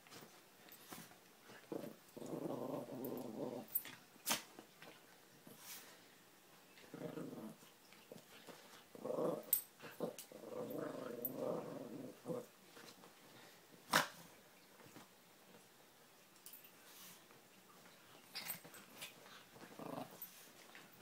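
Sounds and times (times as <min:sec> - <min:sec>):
small dogs growling: 0:01.7 - 0:04.0, 0:06.8 - 0:07.7, 0:08.9 - 0:12.6, 0:19.6 - 0:20.4.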